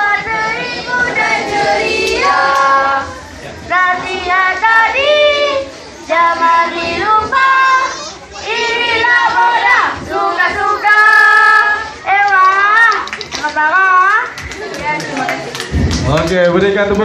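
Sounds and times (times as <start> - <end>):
children singing together: 0.0 - 12.0.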